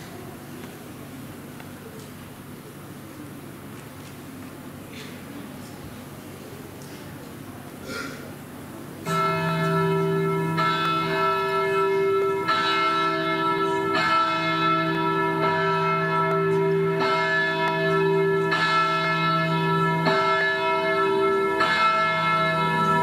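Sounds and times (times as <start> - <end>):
church bells tolling: 9.0 - 23.0.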